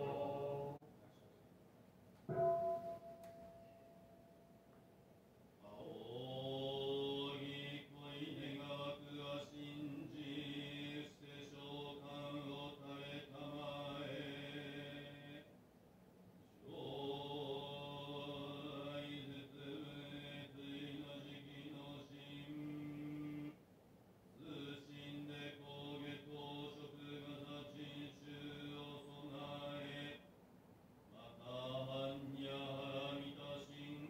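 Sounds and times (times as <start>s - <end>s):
man chanting in monotone: 0.0s - 0.8s, 5.6s - 15.5s, 16.6s - 23.6s, 24.4s - 30.3s, 31.1s - 34.0s.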